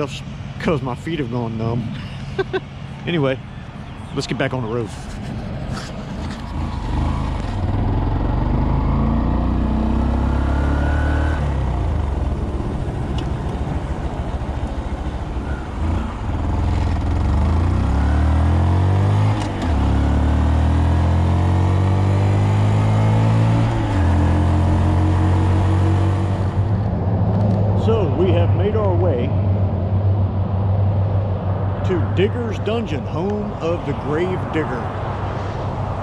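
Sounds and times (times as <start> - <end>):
motorcycle engine accelerating: 5.7 - 32.2.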